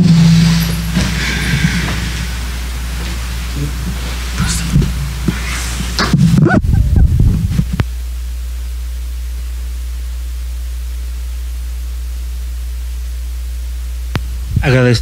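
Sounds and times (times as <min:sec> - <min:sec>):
even hiss: 0:00.0 - 0:06.6
electrical mains hum: 0:00.0 - 0:15.0.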